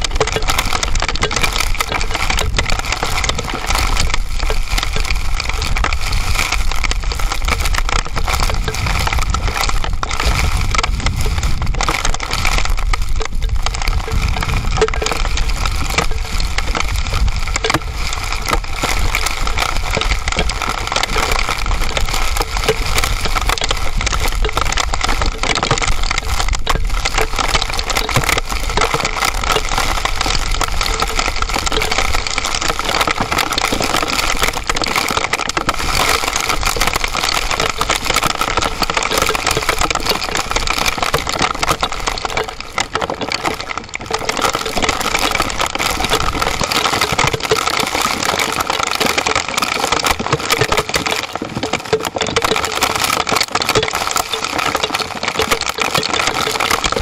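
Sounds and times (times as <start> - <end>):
wind rumbling on microphone: 0.0 - 47.8
hail clattering on ground and rocks: 0.0 - 57.0.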